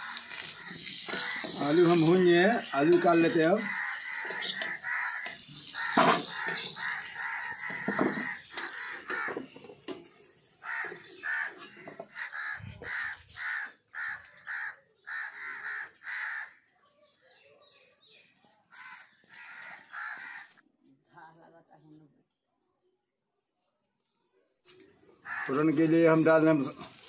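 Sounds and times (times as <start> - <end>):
crows cawing: 0.0 - 16.7, 18.7 - 20.6, 25.0 - 25.9.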